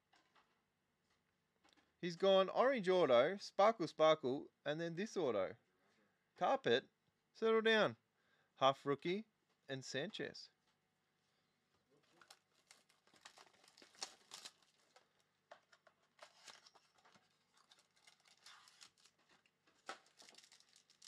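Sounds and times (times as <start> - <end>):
foil pack crinkling: 12.0 - 21.0
trading cards rustling and clicking: 12.0 - 21.0.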